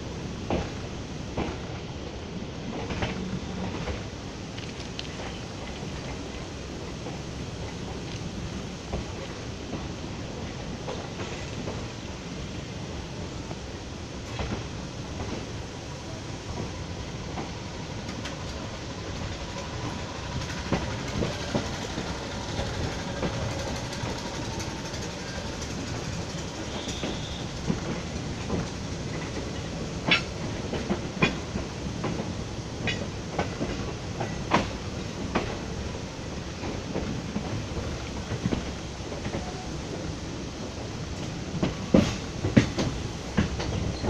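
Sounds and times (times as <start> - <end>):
train wheels rumbling: 0.0 - 44.0
wheels clacking over crossings: 18.0 - 32.2.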